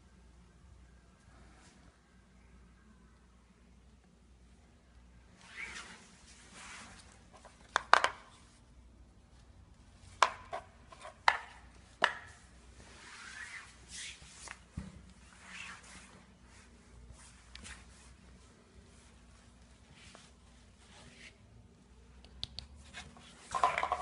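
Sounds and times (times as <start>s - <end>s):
fabric rustling: 5.4s - 7.6s, 11.8s - 21.6s.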